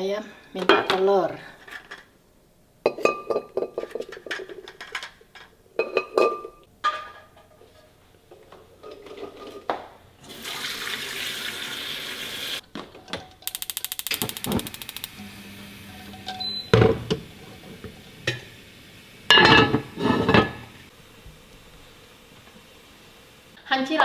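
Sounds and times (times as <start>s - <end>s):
dishes clinking: 2.8s - 9.8s, 15.9s - 18.6s, 19.3s - 20.8s.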